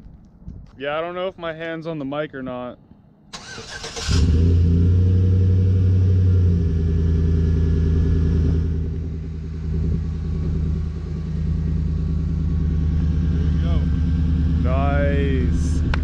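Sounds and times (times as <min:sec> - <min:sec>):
truck engine idling: 0:06.0 - 0:16.0.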